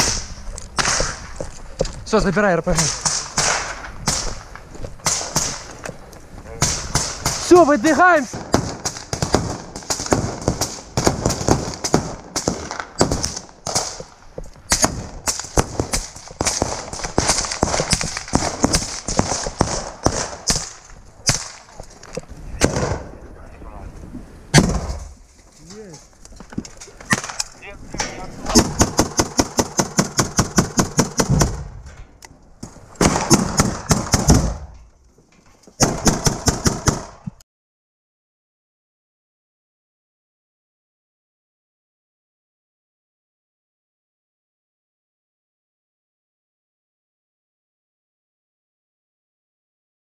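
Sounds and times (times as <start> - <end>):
footsteps crunching over rubble: 0.4 - 2.6, 3.8 - 5.0, 5.6 - 6.6, 20.7 - 22.4, 25.0 - 28.5
rapid gunfire: 2.7 - 4.4, 5.0 - 5.7, 6.6 - 14.0, 14.7 - 21.6, 28.5 - 31.7, 33.0 - 34.6, 35.8 - 37.2.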